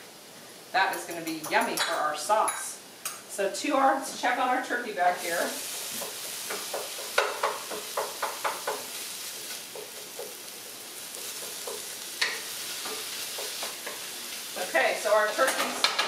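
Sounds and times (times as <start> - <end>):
meat sizzling in a frying pan: 4.3 - 16.0.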